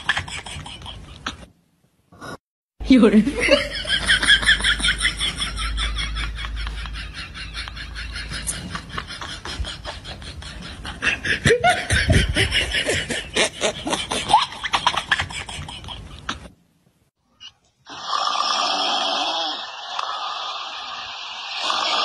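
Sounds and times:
people laughing: 3.4s - 16.3s.

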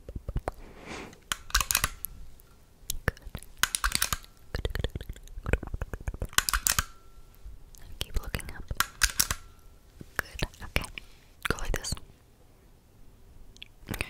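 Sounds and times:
camera and penlight clicking: 1.2s - 2.1s, 3.6s - 4.3s, 6.3s - 6.9s, 8.7s - 9.4s.

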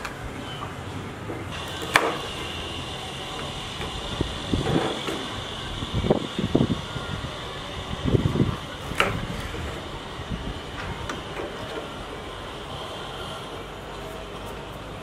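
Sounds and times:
high hum: 0.0s - 15.0s
steady background noise: 0.0s - 15.0s.

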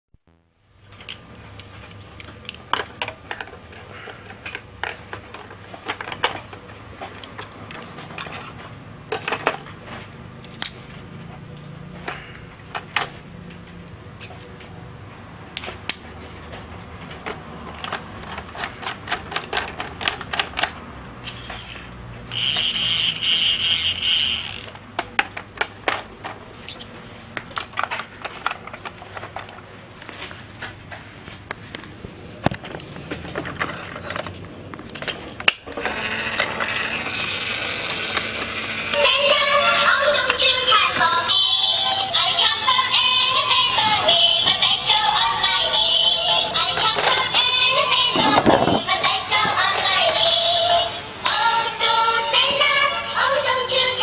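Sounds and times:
plastic toy parts clicking: 17.2s - 26.4s, 27.6s - 29.6s
toy drill buzzing: 21.3s - 24.7s, 35.7s - 39.8s.

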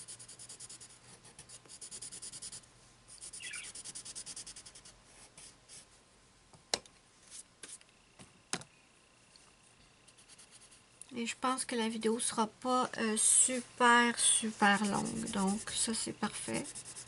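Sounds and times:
pencil scratching on paper: 0.0s - 5.9s, 10.1s - 10.8s, 14.2s - 17.0s.

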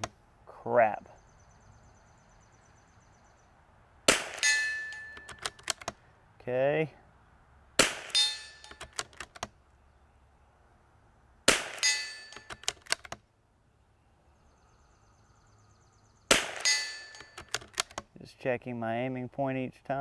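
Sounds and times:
rifle shots with metallic ringing: 4.1s - 5.3s, 7.8s - 8.8s, 11.5s - 12.5s, 16.3s - 17.5s
rifle bolt clicks: 4.9s - 6.0s, 8.1s - 9.6s, 12.3s - 13.2s, 17.1s - 18.1s.

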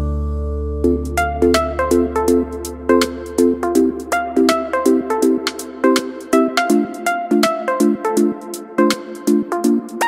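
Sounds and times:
upbeat electronic music: 0.0s - 10.0s.

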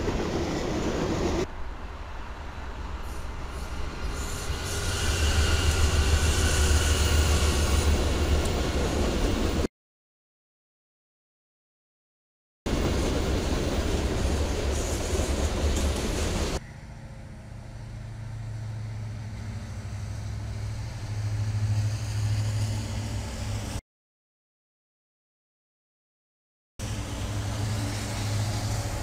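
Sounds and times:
diesel locomotive drone: 0.0s - 9.7s, 12.7s - 23.8s, 26.8s - 29.0s
diesel locomotives rumbling past: 0.0s - 9.7s, 12.7s - 23.8s, 26.8s - 29.0s.

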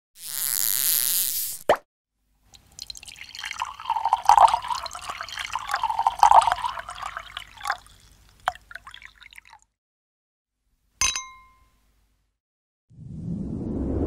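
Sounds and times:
liquid poured into a glass: 2.5s - 9.7s.

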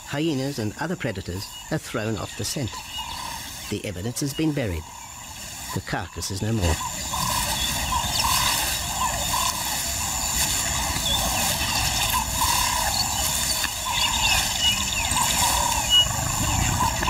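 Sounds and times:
lioness scratching dry earth: 2.4s - 17.0s.

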